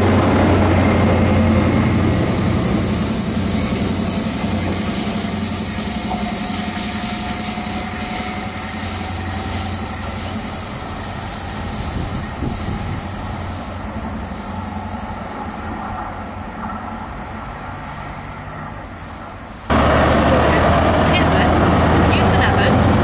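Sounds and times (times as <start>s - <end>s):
diesel train engine running: 0.0s - 23.0s
wheels squealing on track: 1.6s - 19.7s.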